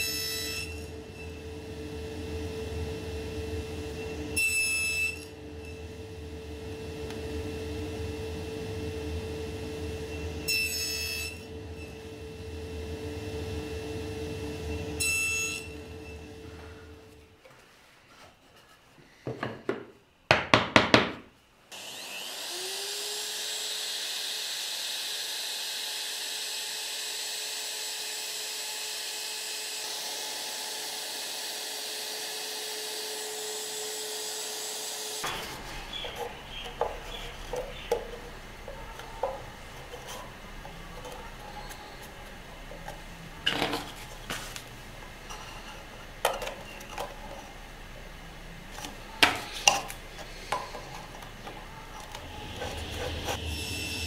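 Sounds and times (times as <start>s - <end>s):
router cutting wood: 0.0s - 1.2s, 21.7s - 44.4s, 48.8s - 54.0s.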